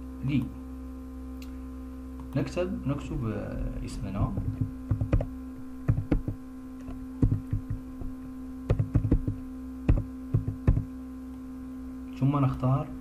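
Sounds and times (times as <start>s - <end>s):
steady electrical hum: 0.0s - 13.0s
keyboard keys clicking: 4.4s - 5.3s, 5.9s - 6.4s, 8.7s - 10.9s.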